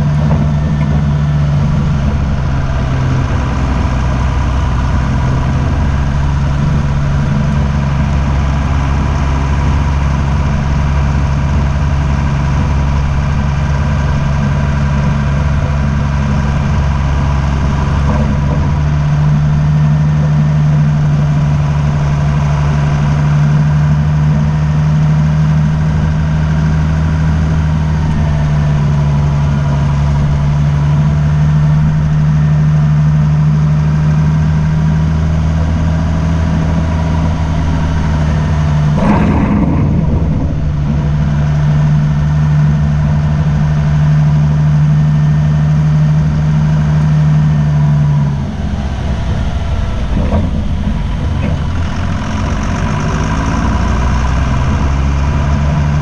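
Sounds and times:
driving on gravel road: 0.0 - 56.0
vehicle engine humming: 0.0 - 56.0.

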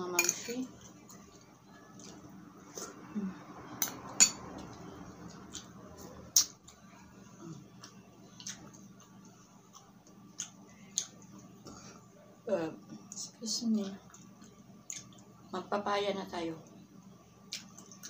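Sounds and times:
soft chewing: 0.7 - 3.4, 4.6 - 12.2, 13.0 - 15.4, 17.4 - 18.0.

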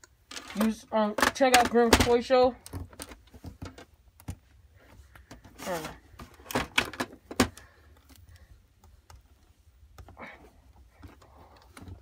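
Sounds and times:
plastic toy clicks and knocks: 0.3 - 4.4
hands fumbling with toy: 0.3 - 8.3.

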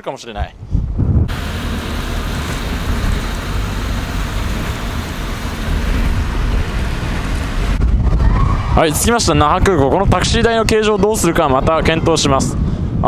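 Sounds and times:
low road noise rumble: 0.6 - 13.0
heavy rain hissing on car: 1.3 - 7.8.

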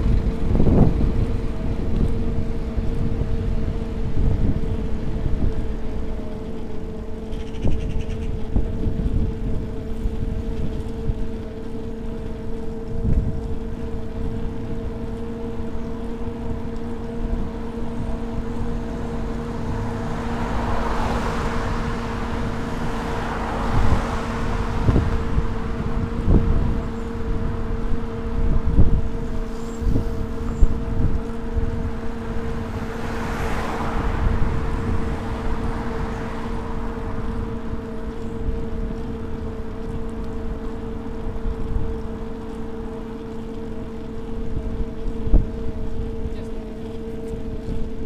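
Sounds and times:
wind on microphone: 0.0 - 43.0, 43.7 - 48.0
road noise: 0.0 - 48.0
car passing by: 16.9 - 28.3, 29.4 - 40.0.

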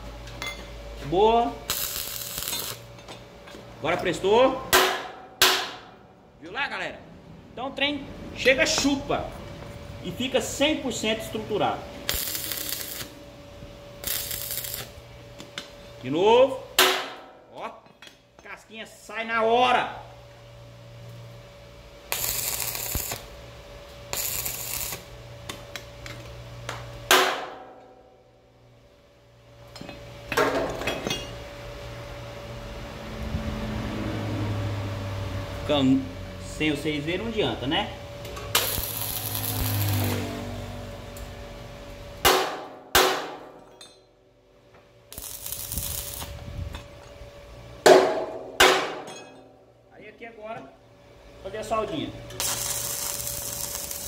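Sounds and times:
steady low hum: 0.0 - 54.0
arc welding crackling: 1.1 - 3.0, 10.0 - 13.4, 14.0 - 15.2, 22.0 - 27.0, 38.5 - 41.3, 45.1 - 46.8, 51.6 - 54.0
hammer striking steel: 4.6 - 6.0, 16.8 - 18.1, 27.1 - 28.1, 42.2 - 44.1, 47.8 - 49.6.

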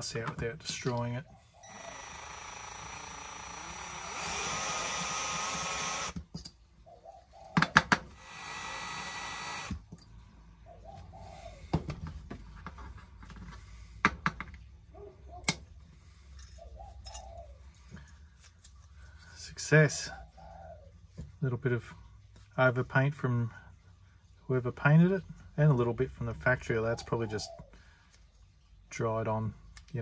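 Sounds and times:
cordless drill drilling: 1.6 - 6.2, 8.1 - 9.9.

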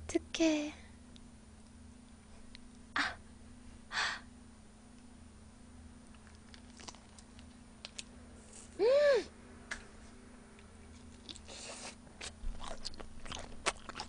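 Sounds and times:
low electrical hum: 0.0 - 14.0
person humming: 8.8 - 9.3.

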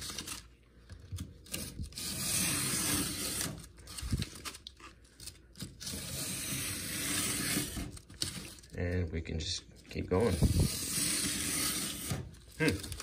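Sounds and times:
utility knife cutting cardboard: 1.4 - 3.7, 5.6 - 8.5, 10.1 - 13.0.

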